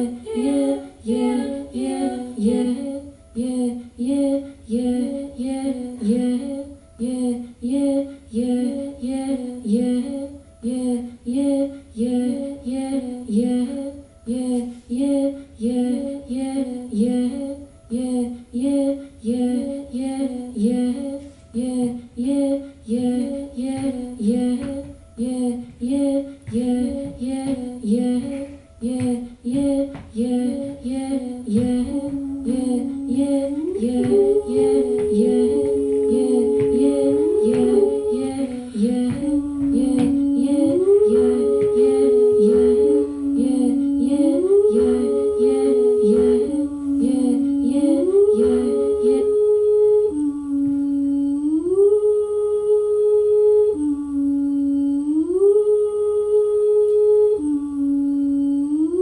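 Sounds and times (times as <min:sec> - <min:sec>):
hummed note sliding between pitches: 0:20.6 - 0:59.0.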